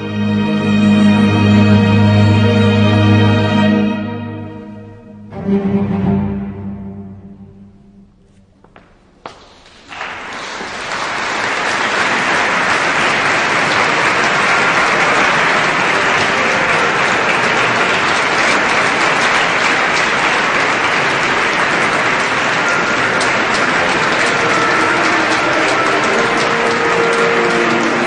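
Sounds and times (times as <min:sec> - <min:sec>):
audience applauding: 0:09.3 - 0:28.0.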